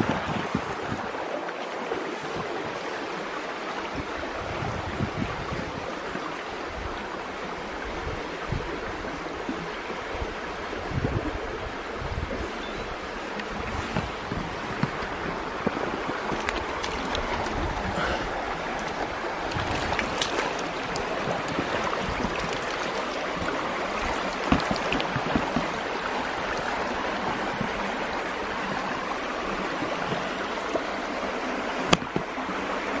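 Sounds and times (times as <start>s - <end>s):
stream rushing: 0.0s - 33.0s.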